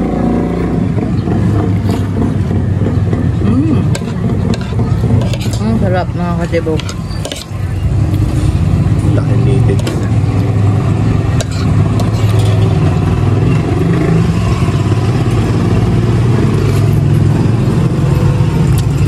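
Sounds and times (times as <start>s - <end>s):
cutlery clinking: 3.9s - 5.8s, 6.7s - 7.7s, 11.4s - 12.8s.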